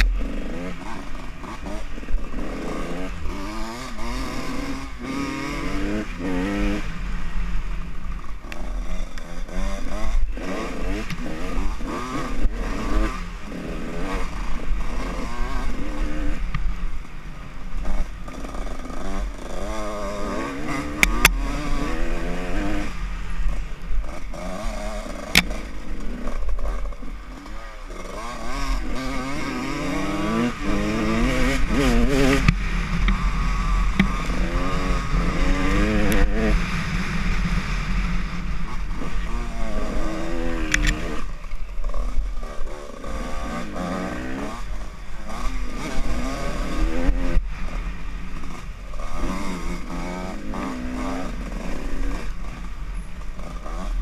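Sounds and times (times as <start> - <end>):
dirt bike engine revving: 0.0 - 54.0
sharp clicks: 40.6 - 41.1.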